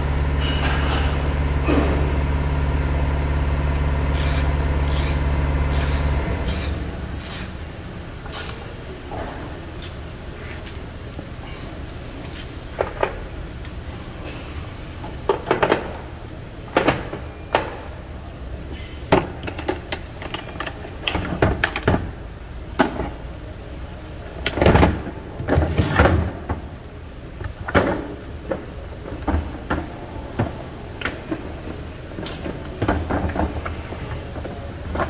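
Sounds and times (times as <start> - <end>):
low background hum: 0.0 - 35.0.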